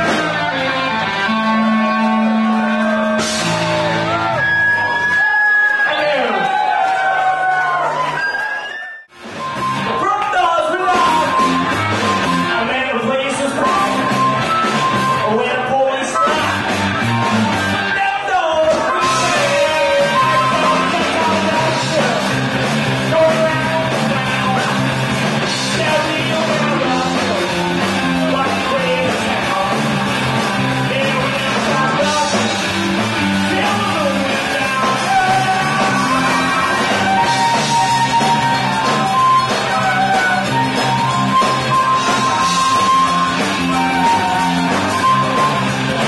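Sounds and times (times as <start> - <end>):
harmonica long held notes: 0.0 - 6.0, 19.0 - 22.4, 32.1 - 46.0
live rock band playing: 0.0 - 6.6, 7.6 - 46.0.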